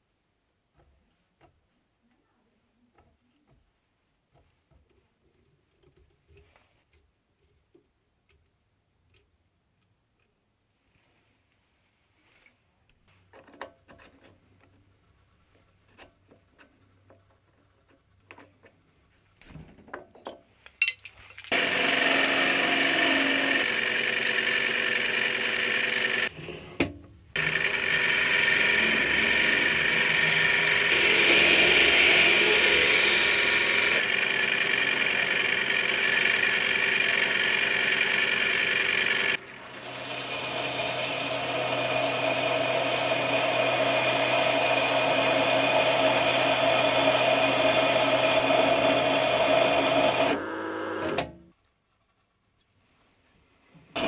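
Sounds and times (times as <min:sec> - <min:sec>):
metal lathe cutting steel: 0:21.5 - 0:26.3, 0:27.4 - 0:51.4.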